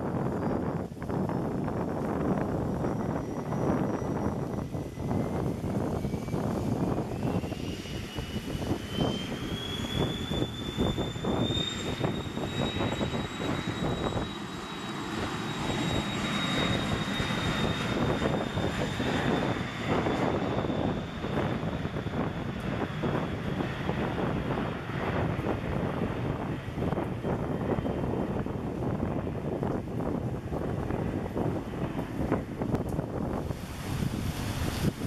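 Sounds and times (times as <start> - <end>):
jet engines spooling up: 0.0 - 35.0
wind buffeting microphone: 0.0 - 35.0.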